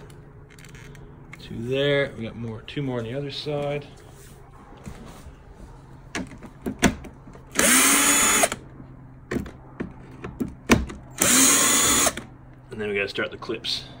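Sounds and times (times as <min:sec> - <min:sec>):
plastic handling clicks and knocks: 0:06.1 - 0:07.4, 0:09.3 - 0:11.0
cordless drill running: 0:07.5 - 0:08.6, 0:11.1 - 0:12.3.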